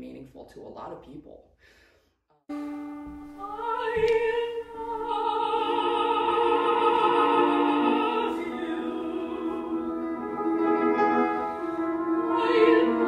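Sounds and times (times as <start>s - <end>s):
piano accompaniment: 2.5s - 13.0s
woman singing operatically: 3.4s - 10.4s, 12.2s - 13.0s.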